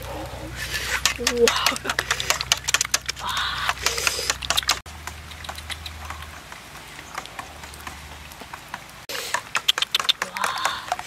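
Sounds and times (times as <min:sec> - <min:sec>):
spoon beating eggs in a metal bowl: 0:00.9 - 0:04.8.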